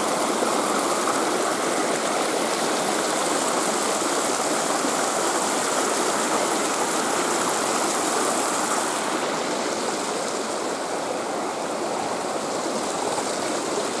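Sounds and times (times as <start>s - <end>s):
creek rushing over stones: 0.0s - 14.0s.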